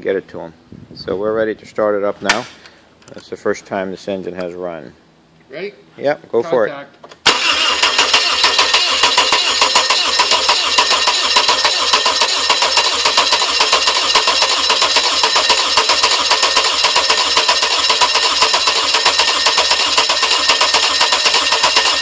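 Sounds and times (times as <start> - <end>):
starter motor cranking engine: 7.2 - 22.0.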